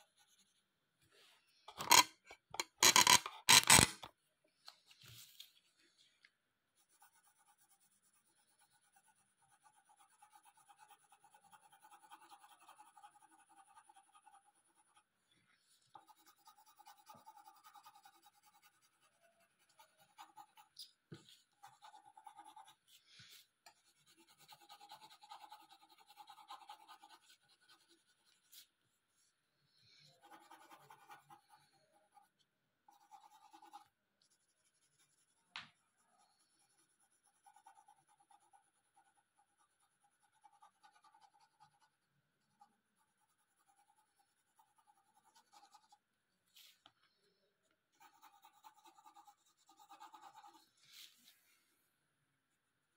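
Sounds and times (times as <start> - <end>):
pencil shading on paper: 0.0 - 0.7, 6.7 - 29.4, 30.0 - 46.7, 47.9 - 51.2.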